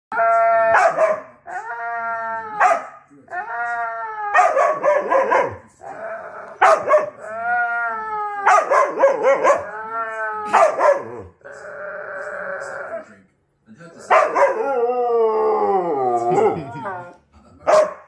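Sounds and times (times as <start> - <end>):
huskies howling whines: 0.1 - 13.0, 14.1 - 17.0
dogs barking: 0.6 - 1.6, 2.6 - 3.0, 4.2 - 7.5, 8.4 - 11.4, 14.1 - 14.9, 17.7 - 18.0.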